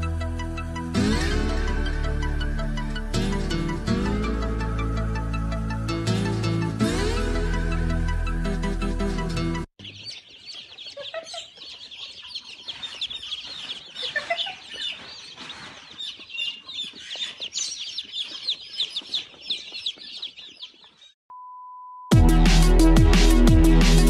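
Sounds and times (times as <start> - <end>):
chicks peeping: 9.8 - 21.1.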